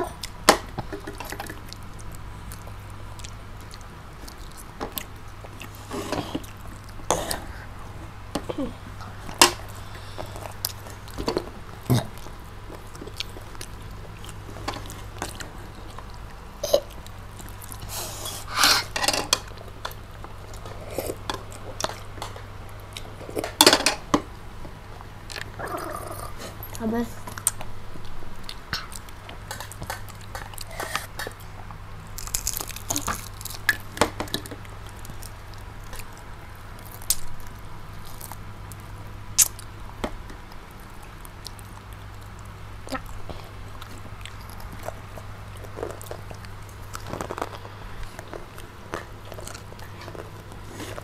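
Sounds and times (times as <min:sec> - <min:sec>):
chewing: 0:00.0 - 0:08.0, 0:09.0 - 0:23.6, 0:25.3 - 0:36.2, 0:40.5 - 0:51.0
fingers picking at crispy food: 0:28.4 - 0:39.7.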